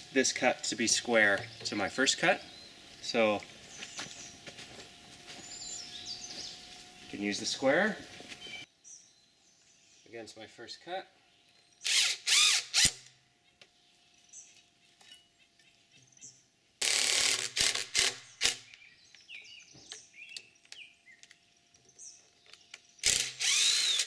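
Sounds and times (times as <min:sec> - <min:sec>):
cordless drill driving screws: 0:11.8 - 0:13.1, 0:16.8 - 0:18.7, 0:23.0 - 0:24.0.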